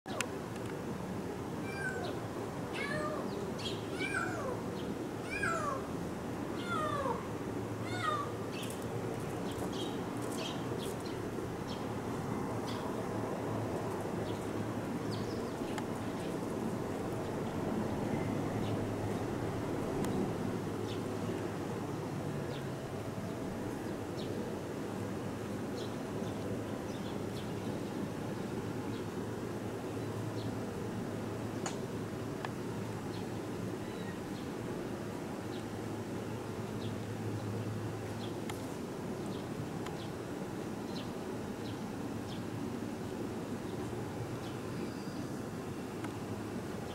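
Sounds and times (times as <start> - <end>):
kitten meowing: 1.6 - 2.2, 2.8 - 3.3, 4.0 - 4.6, 5.3 - 5.8, 6.6 - 7.2, 7.9 - 8.3
small birds chirping: 2.9 - 5.8, 7.9 - 11.9.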